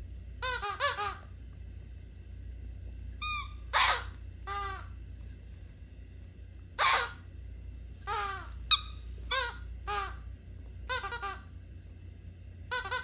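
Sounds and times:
squeaky dog toy squeaking: 0:00.4 - 0:01.2, 0:03.2 - 0:04.9, 0:06.8 - 0:07.2, 0:08.1 - 0:10.2, 0:10.9 - 0:11.4, 0:12.7 - 0:13.0.

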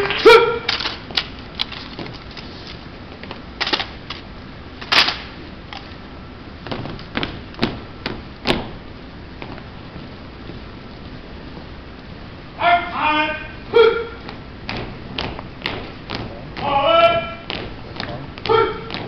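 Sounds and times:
boots striking hard floor: 0:14.3 - 0:19.0.

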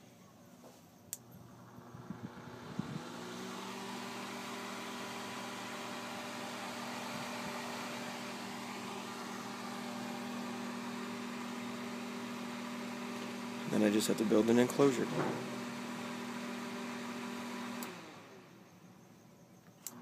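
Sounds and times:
electric fan running: 0:01.1 - 0:18.7.

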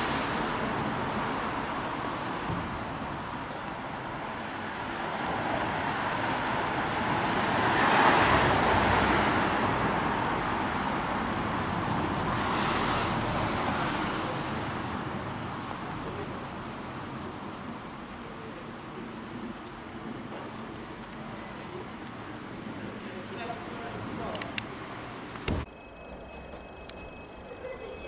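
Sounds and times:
vehicle passing: 0:04.6 - 0:15.0.

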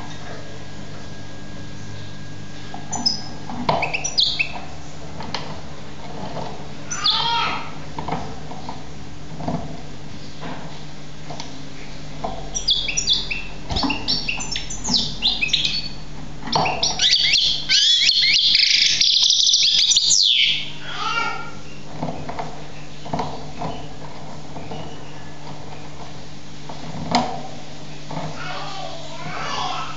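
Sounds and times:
steady low hum: 0:00.0 - 0:29.9
goldfinch singing: 0:02.9 - 0:04.6, 0:06.9 - 0:07.3, 0:12.5 - 0:20.8.

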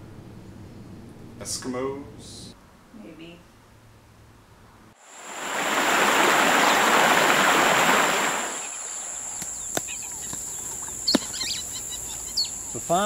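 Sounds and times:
waterfall rushing: 0:05.0 - 0:09.3
high insect drone: 0:05.0 - 0:13.0
bird chirps: 0:08.5 - 0:13.0.

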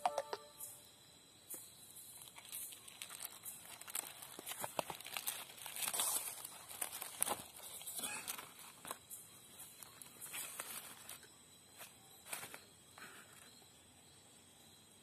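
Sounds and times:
leaf wrapper rustling and crinkling: 0:02.1 - 0:13.6.

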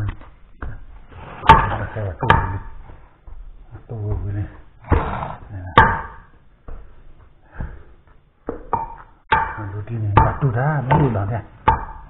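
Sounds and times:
utensil knocking against a bowl: 0:08.4 - 0:12.0.

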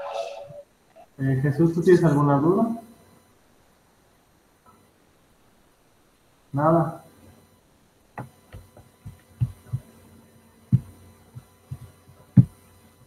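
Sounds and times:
faint steady hum: 0:00.0 - 0:13.0
soft low thumps: 0:08.2 - 0:10.0, 0:10.7 - 0:12.7.

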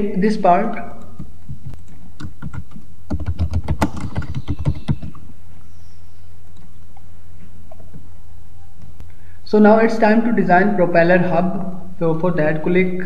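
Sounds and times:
steady low hum: 0:00.0 - 0:13.0
typing on computer keyboard: 0:01.5 - 0:05.2.

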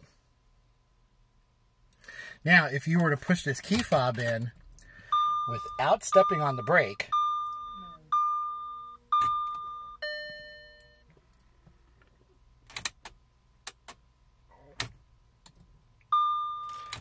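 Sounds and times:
warning chime tone: 0:05.1 - 0:11.0.

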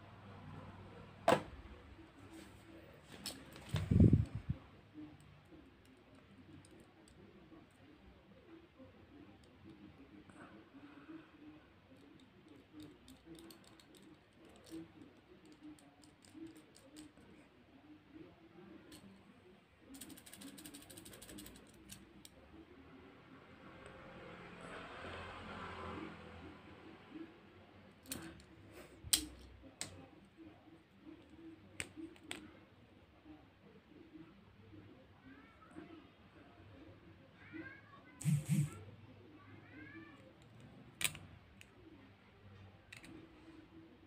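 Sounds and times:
small clicks of plastic toy parts: 0:12.0 - 0:17.2, 0:19.9 - 0:22.4, 0:28.0 - 0:28.5, 0:40.2 - 0:41.7, 0:42.9 - 0:43.2.

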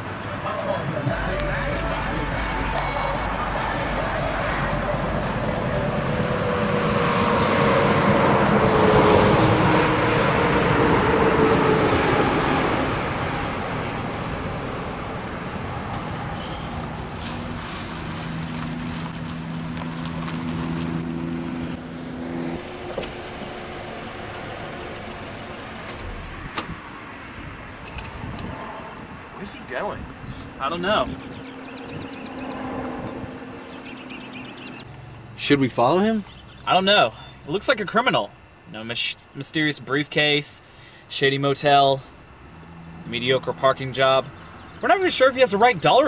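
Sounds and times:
low engine hum: 0:00.0 - 0:35.4
car passing by: 0:00.2 - 0:27.4, 0:30.9 - 0:34.9.

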